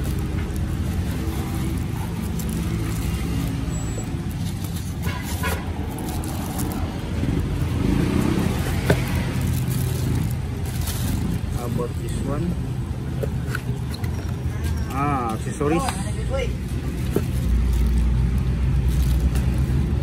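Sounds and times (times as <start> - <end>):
packing foam rustling: 0.0 - 12.2, 16.5 - 20.0
plastic wrapping crinkling: 0.0 - 12.2, 16.5 - 20.0.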